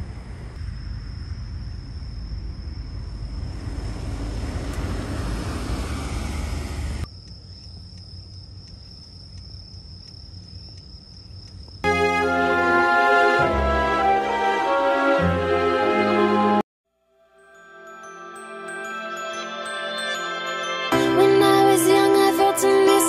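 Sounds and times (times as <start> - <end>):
ferry engine rumble: 0.0 - 7.1
high-pitched steady tone: 17.3 - 22.5.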